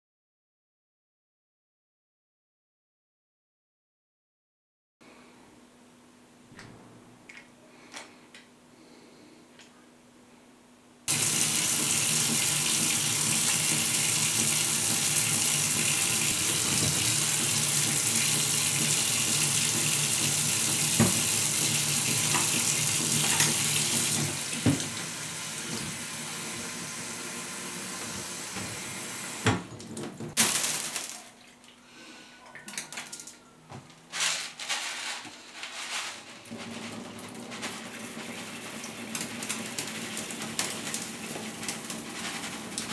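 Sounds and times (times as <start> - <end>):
rice pouring into plastic tank: 11.1 - 24.9, 30.3 - 31.4, 36.2 - 42.9
faucet running water into tank: 11.1 - 30.4, 37.0 - 42.9.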